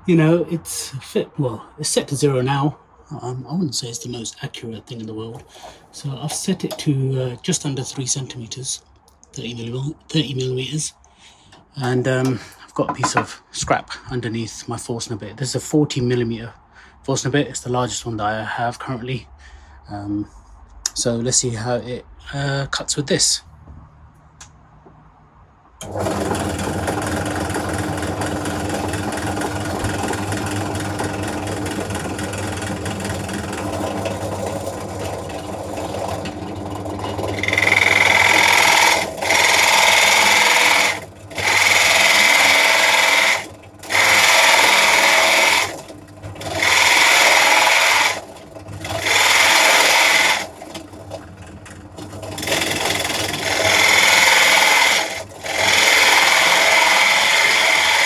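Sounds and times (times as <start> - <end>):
drill press motor humming: 25.8 - 58.0
drill bit rasping into wood: 37.0 - 45.8, 46.4 - 50.5, 52.4 - 58.0.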